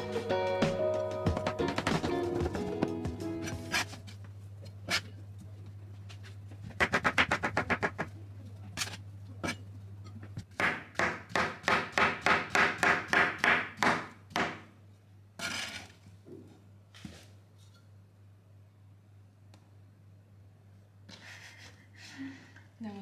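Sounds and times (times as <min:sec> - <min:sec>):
knife chopping on plastic board: 0:06.8 - 0:08.1, 0:10.5 - 0:14.6.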